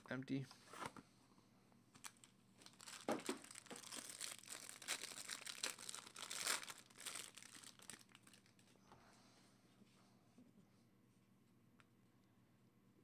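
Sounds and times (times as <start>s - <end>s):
plastic wrapper crinkling and tearing: 2.0s - 8.7s.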